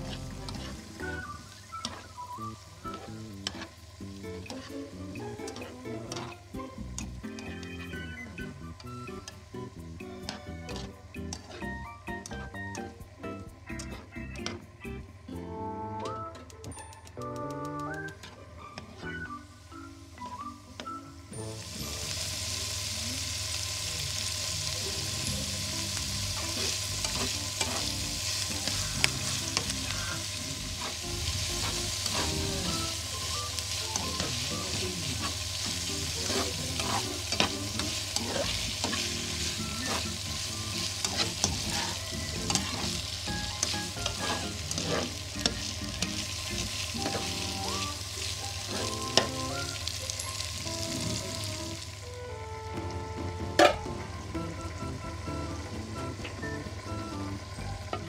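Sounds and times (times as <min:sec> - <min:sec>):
spatula scraping against pan: 0:00.0 - 0:00.9, 0:10.7 - 0:12.6, 0:26.4 - 0:28.0, 0:28.6 - 0:32.5, 0:36.1 - 0:40.2, 0:40.8 - 0:45.6, 0:48.6 - 0:49.4
food sizzling in a hot pan: 0:00.0 - 0:14.4, 0:21.3 - 0:52.2.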